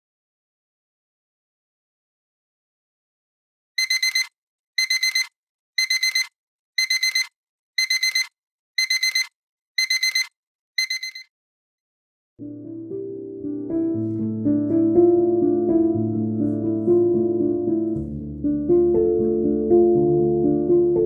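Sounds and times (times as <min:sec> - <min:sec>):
alarm clock beeping: 0:03.8 - 0:11.3.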